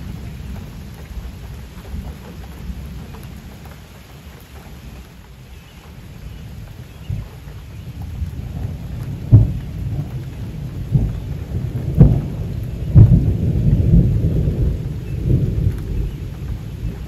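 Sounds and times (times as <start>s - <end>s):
sharp thunder cracks: 0.0s - 3.5s, 7.9s - 17.0s
thunder rumbling: 0.0s - 5.2s, 5.8s - 17.0s
rain hissing: 0.0s - 17.0s.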